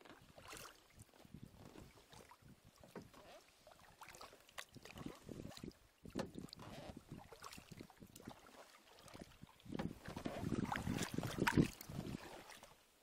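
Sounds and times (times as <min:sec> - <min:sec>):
water splashes and drips: 0:00.0 - 0:12.8
kayak paddle dipping into water: 0:00.0 - 0:12.9.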